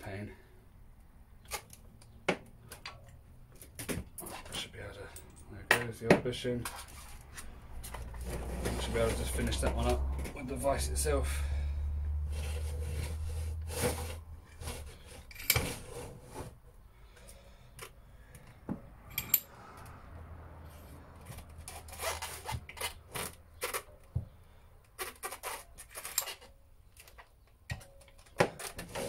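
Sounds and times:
metal rubbing and scraping: 6.5s - 11.2s, 12.2s - 16.8s, 20.6s - 24.0s, 28.5s - 29.0s
metal parts clicking and knocking: 19.1s - 19.5s, 24.9s - 28.9s.

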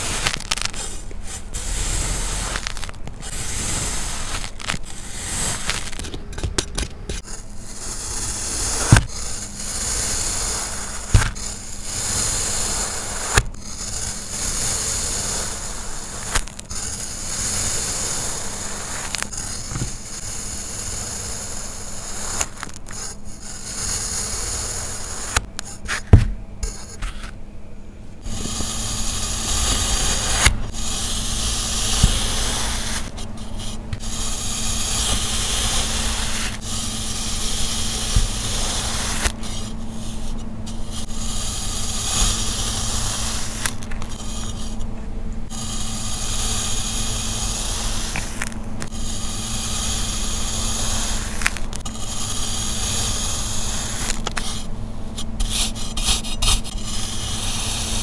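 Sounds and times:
sand scraping and crumbling: 46.4s - 54.5s.

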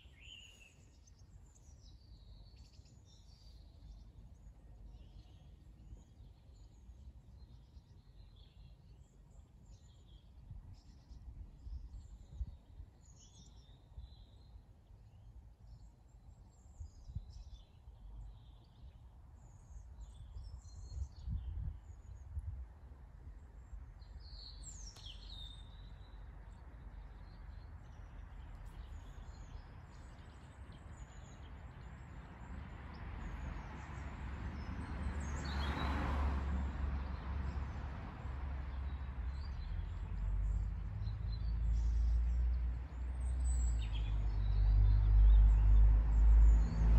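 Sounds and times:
small birds chirping: 23.4s - 35.9s, 38.8s - 46.9s.

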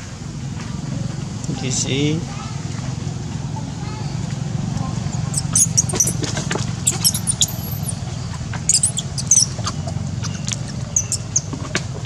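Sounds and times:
low steady rumble: 0.0s - 12.0s
high-pitched animal squeaks and chirps: 5.1s - 8.0s, 8.7s - 11.6s.

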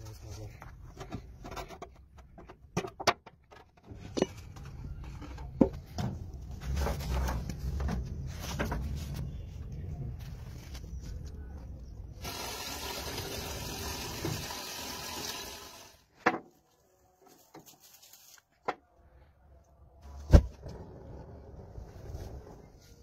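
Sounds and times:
water running: 12.2s - 16.0s.

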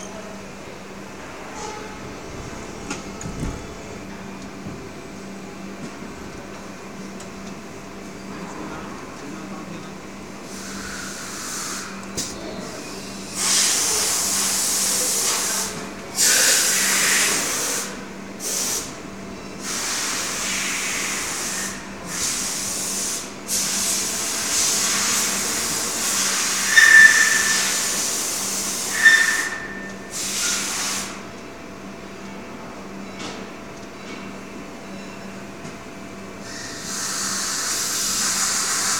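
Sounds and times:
short high squeaks: 26.5s - 28.0s, 28.8s - 30.1s.

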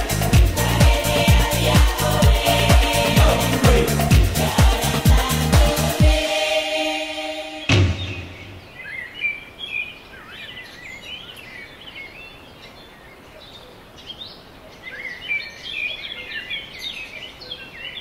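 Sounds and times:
music beat: 0.0s - 6.6s
faint outdoor background noise: 6.2s - 18.0s.

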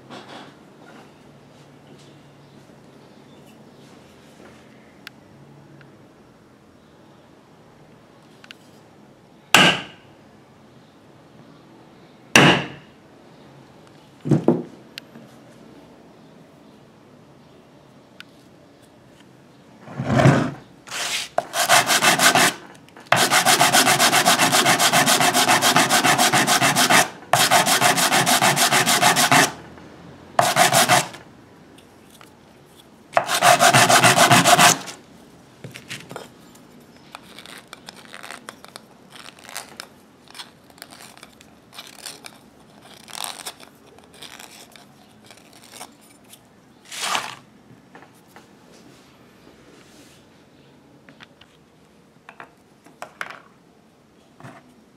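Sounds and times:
plastic tube rubbing on sandpaper: 20.9s - 29.6s, 30.4s - 31.2s, 33.2s - 35.0s.

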